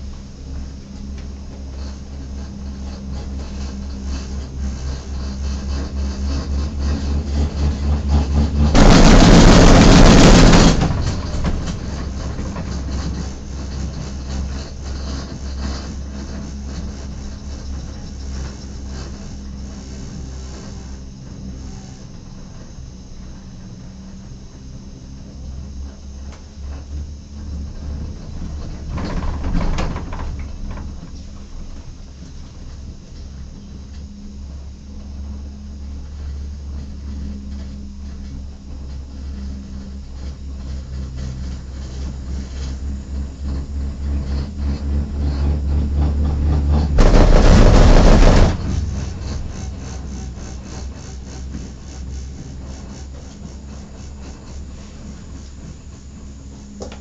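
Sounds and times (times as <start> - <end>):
cable car cabin rumble: 0.0 - 57.0.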